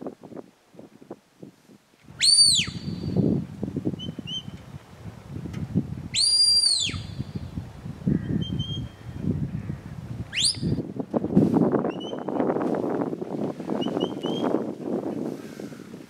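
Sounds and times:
shepherd's whistle commands: 2.2 - 3.2, 6.2 - 7.2, 10.3 - 10.8, 13.8 - 14.5.

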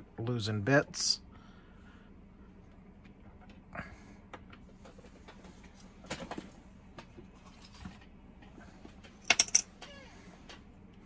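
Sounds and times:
small parts clicking and tapping: 9.0 - 10.6.

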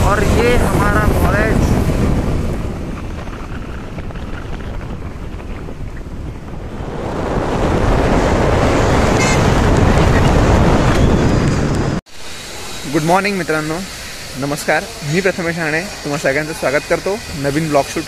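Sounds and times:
wind buffeting microphone: 0.0 - 13.3.

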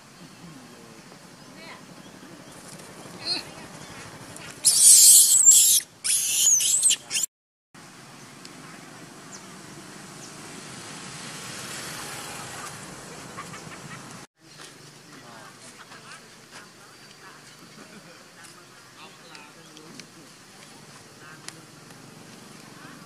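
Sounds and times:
monkey shrieking: 4.6 - 7.3.

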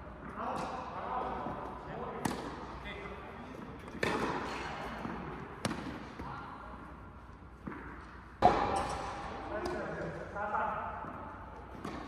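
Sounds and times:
tennis ball struck by rackets: 2.2 - 2.6, 3.9 - 6.3, 11.7 - 12.0.

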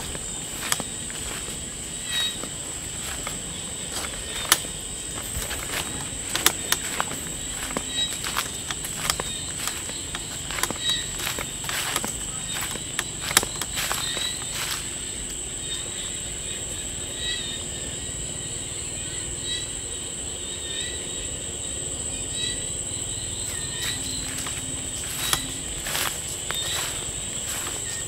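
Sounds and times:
footsteps on dry leaves: 0.0 - 15.3, 23.4 - 28.0
insect chirps: 0.0 - 28.0
insects trilling: 0.0 - 28.0.

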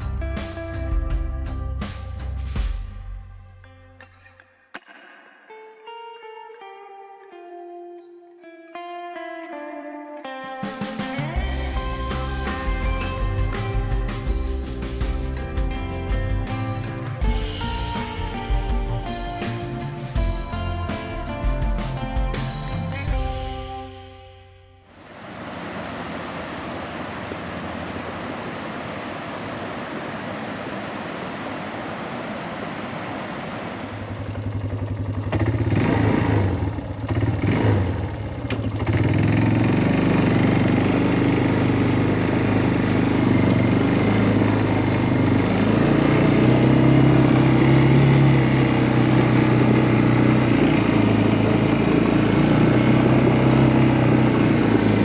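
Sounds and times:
off-road vehicle engine running: 11.4 - 23.5, 33.5 - 55.0.

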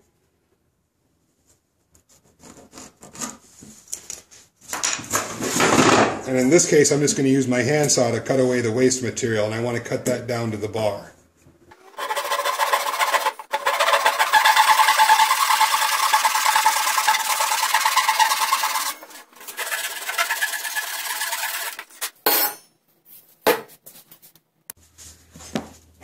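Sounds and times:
handsaw cutting wood: 11.8 - 21.9.

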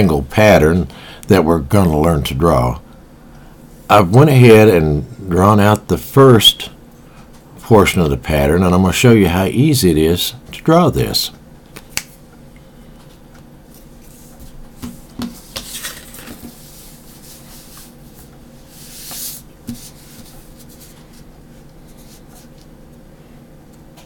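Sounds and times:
low steady hum: 0.0 - 24.0
ruler rubbing across paper: 15.4 - 21.2, 21.8 - 22.6.

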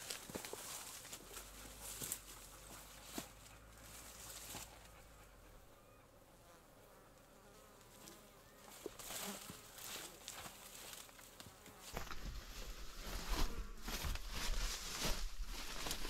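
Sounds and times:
insect buzzing faintly: 0.0 - 16.0
rustling noise: 8.7 - 16.0.

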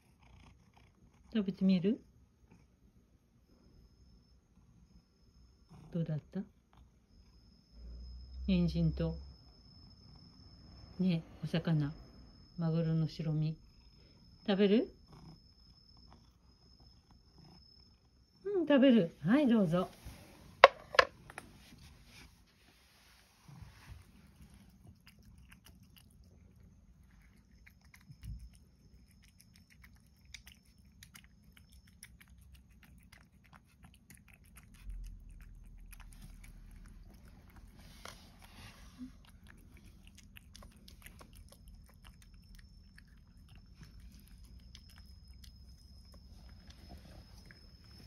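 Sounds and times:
low steady hum: 0.8 - 48.0
cat chewing food: 23.4 - 48.0.

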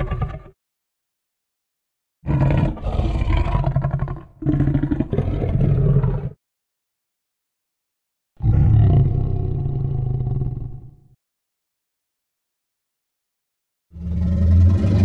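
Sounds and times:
deep raspy monster roars: 2.3 - 6.4, 8.4 - 11.0, 14.0 - 15.0.

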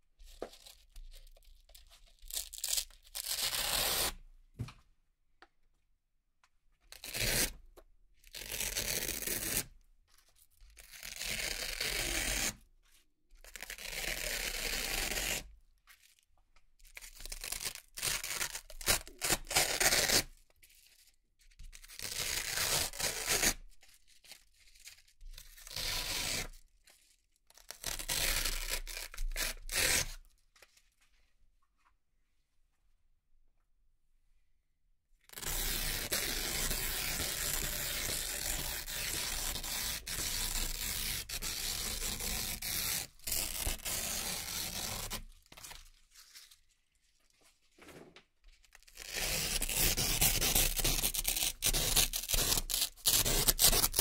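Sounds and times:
velcro tearing rips: 2.3 - 4.2, 10.8 - 12.6, 17.2 - 20.3, 21.8 - 23.6, 27.6 - 30.2, 35.3 - 46.5, 48.8 - 54.0.

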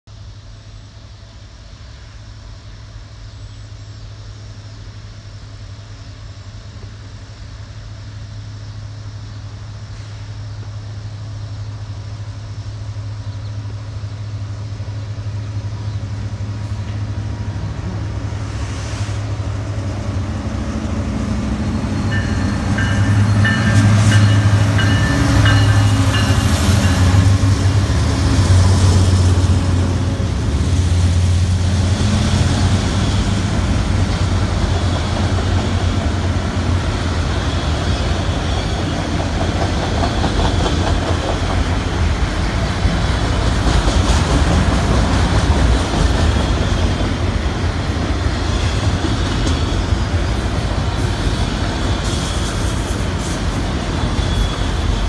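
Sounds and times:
diesel locomotive rumble: 0.2 - 55.0
steady high tones: 19.8 - 40.8.

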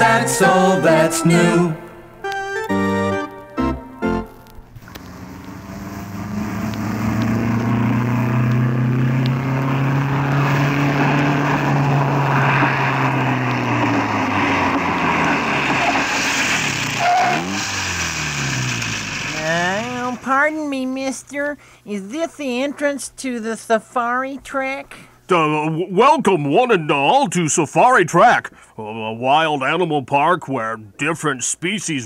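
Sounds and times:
car engine running: 4.8 - 20.5.

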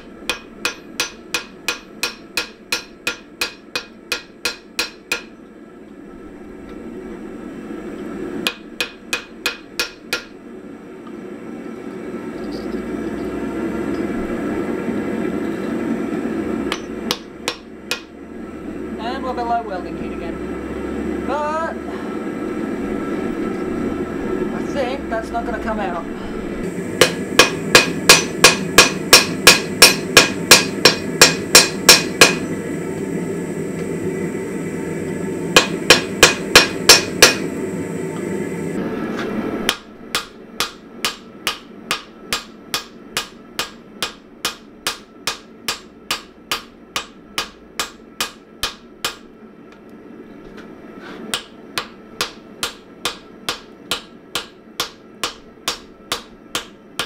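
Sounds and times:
hammer striking metal on anvil: 0.0 - 5.4, 8.4 - 10.4, 16.7 - 18.1, 27.0 - 32.5, 35.6 - 37.5, 39.7 - 49.3, 51.3 - 57.0.

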